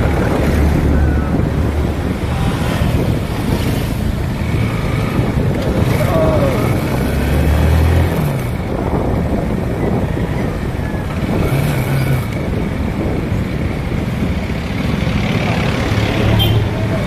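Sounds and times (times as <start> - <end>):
road and air rush: 0.0 - 17.0.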